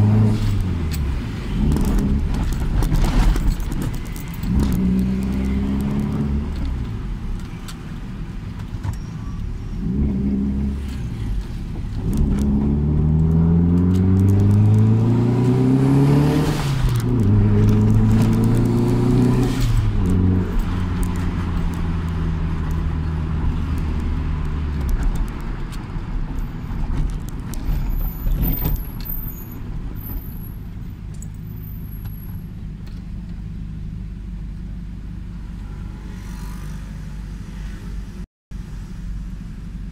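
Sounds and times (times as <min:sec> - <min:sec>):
car engine revving from cabin: 0:12.0 - 0:20.6.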